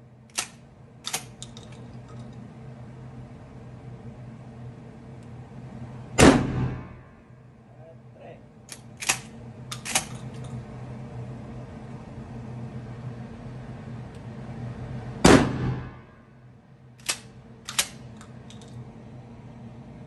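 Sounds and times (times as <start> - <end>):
steady low hum: 0.0 - 20.0
shotgun shot: 6.2 - 7.0, 15.2 - 16.1
shotgun pump clacks: 17.0 - 18.7.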